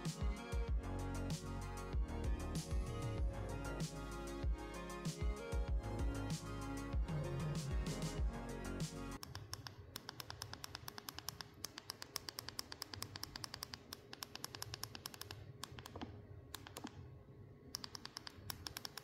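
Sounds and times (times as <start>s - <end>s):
phone buttons clicking: 9.2s - 17.0s, 17.7s - 19.0s.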